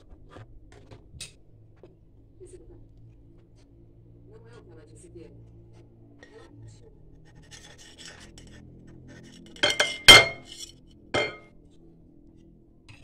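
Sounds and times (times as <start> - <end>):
faint scraping: 9.5 - 11.4
cutlery clinking on glass plate: 9.6 - 11.4.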